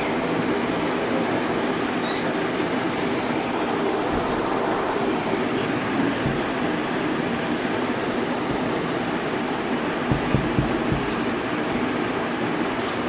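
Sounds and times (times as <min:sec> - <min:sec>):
marker squeaking on whiteboard: 0:01.6 - 0:03.6, 0:04.2 - 0:05.4, 0:06.2 - 0:07.7
steady rumbling background: 0:03.4 - 0:12.1.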